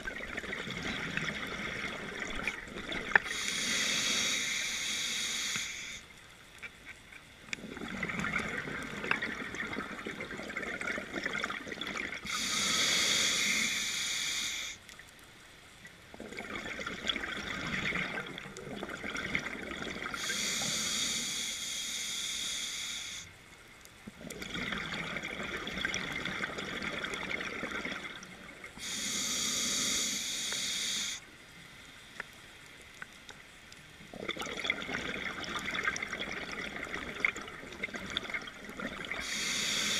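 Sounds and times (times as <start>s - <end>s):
exhaled bubbles gurgling: 0.0s - 4.8s, 7.4s - 13.9s, 16.1s - 21.0s, 24.1s - 31.2s, 34.0s - 39.9s
regulator hissing inhale: 3.2s - 6.1s, 12.2s - 14.8s, 20.2s - 23.4s, 28.8s - 31.3s, 39.2s - 39.9s.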